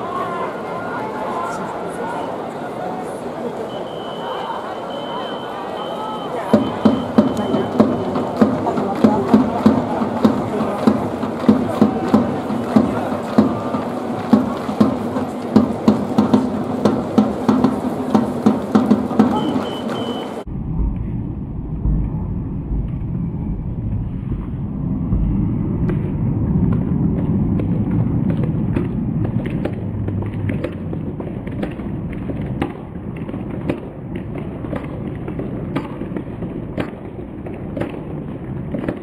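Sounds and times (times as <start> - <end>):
stadium crowd voices: 0.0 - 20.5
claps and knocks: 6.5 - 20.2, 25.9 - 39.0.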